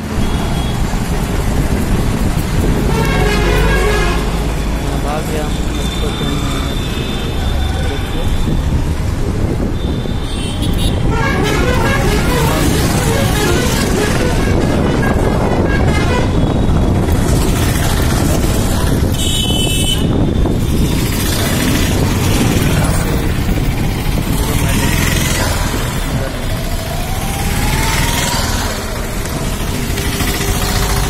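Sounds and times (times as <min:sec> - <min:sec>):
passing traffic: 0:00.0 - 0:31.0
vehicle rumble on road: 0:11.1 - 0:31.0.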